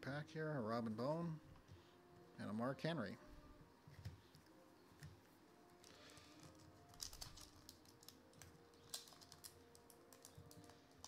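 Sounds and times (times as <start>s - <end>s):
foil pack crinkling: 5.8s - 11.0s.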